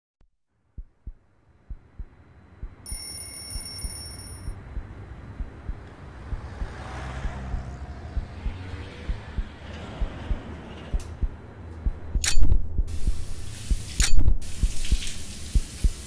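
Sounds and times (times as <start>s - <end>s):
heartbeat-like low thumps: 0.7s - 3.0s, 4.5s - 16.0s
high ringing tone: 2.8s - 4.8s
hiss: 12.9s - 16.0s.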